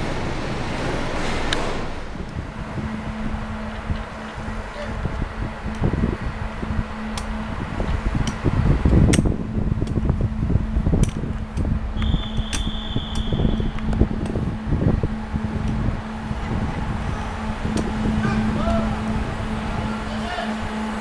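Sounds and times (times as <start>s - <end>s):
train machinery humming and rumbling: 0.0s - 21.0s
sharp clicks: 11.0s - 14.4s.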